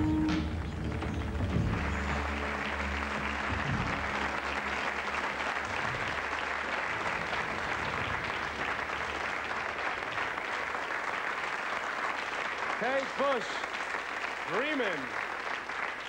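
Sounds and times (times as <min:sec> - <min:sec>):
low song notes: 0:00.0 - 0:10.5
audience applauding: 0:00.0 - 0:16.0.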